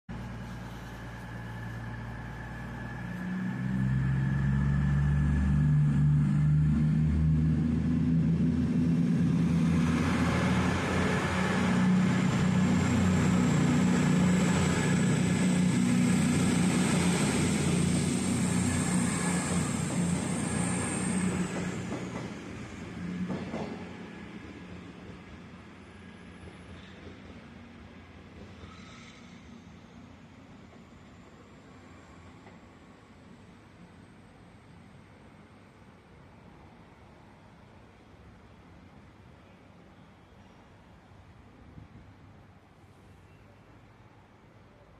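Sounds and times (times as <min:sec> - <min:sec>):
train diesel engines throbbing: 0:00.1 - 0:36.0
wheel and rail noise: 0:00.1 - 0:37.8.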